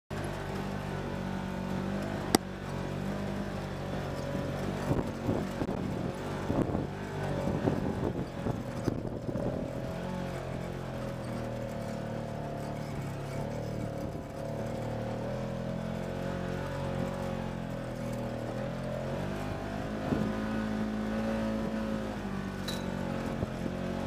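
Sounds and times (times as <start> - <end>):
off-road vehicle engine under load: 0.1 - 24.0
vehicle knocking and rattling: 1.7 - 20.4.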